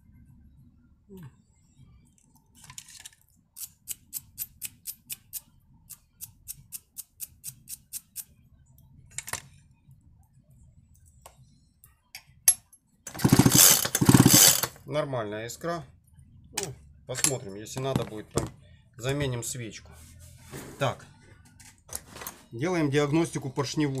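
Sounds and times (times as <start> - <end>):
chainsaw recoil starter pulled: 13.1 - 14.8.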